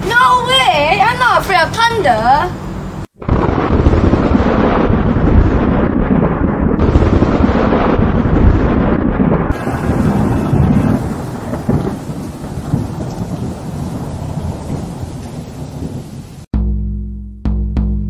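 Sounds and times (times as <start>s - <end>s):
rolling thunder: 3.1s - 16.5s
heavy rain: 3.3s - 16.5s.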